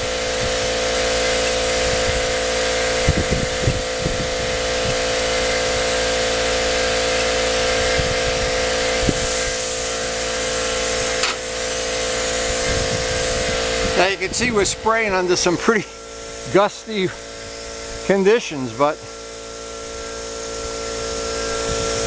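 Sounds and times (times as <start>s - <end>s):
air compressor humming: 0.0s - 22.0s
air spray gun hissing: 0.0s - 22.0s
wind buffeting microphone: 1.8s - 5.4s, 7.7s - 9.6s, 12.3s - 15.8s, 21.4s - 22.0s.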